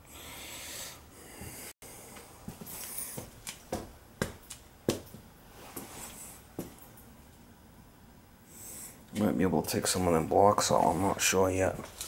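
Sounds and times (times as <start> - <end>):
footsteps on concrete floor: 1.4 - 6.9.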